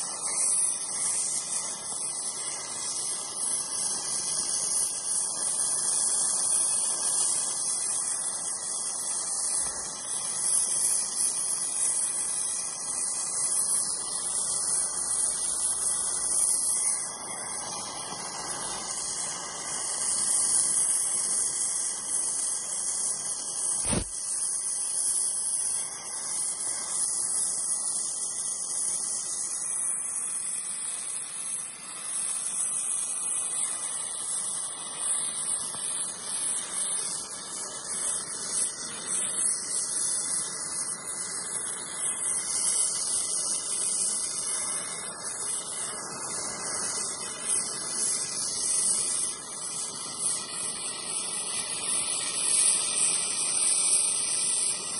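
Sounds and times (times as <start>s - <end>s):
welding arc hissing: 0.0s - 54.9s
sharp click: 23.8s - 24.2s.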